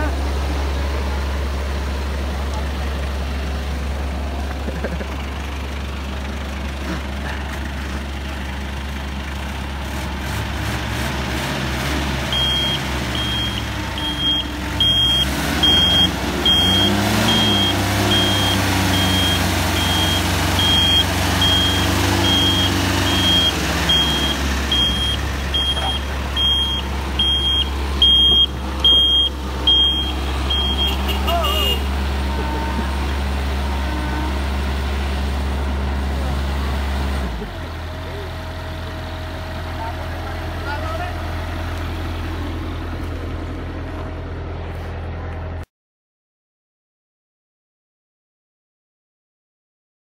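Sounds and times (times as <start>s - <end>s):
diesel engines running under load: 0.0s - 45.7s
reversing alarm beeping: 12.3s - 31.8s.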